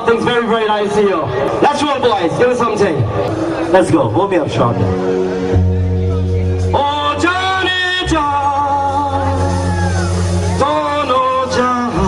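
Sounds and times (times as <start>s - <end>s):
gliding melody line: 2.8s - 12.0s
steady low bass note: 3.0s - 12.0s.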